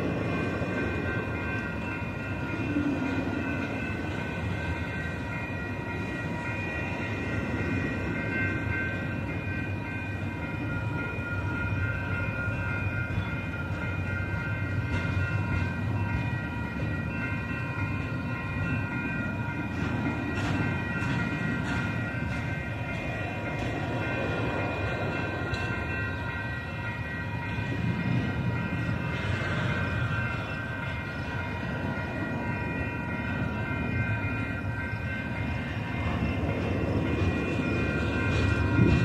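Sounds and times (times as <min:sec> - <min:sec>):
train wheels rumbling on rail: 0:00.0 - 0:39.0.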